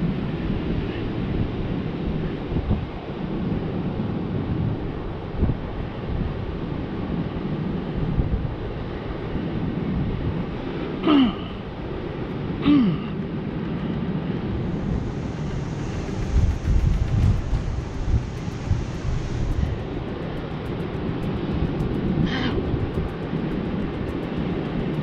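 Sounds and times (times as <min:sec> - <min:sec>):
wind on microphone: 0:00.0 - 0:11.0, 0:11.6 - 0:25.0
man grunting in pain: 0:11.0 - 0:11.6.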